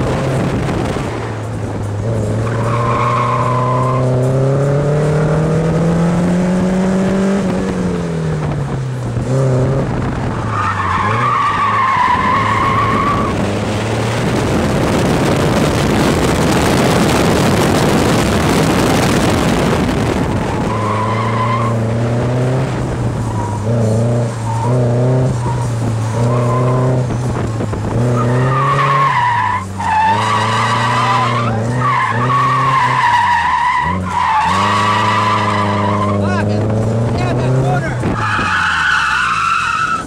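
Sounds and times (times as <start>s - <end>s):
car engine revving: 0.0s - 40.0s
tyres squealing: 28.1s - 40.0s.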